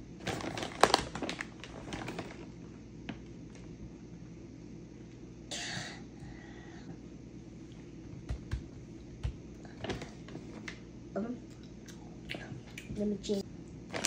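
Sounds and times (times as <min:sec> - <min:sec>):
plastic bag crinkling: 0:00.2 - 0:02.5.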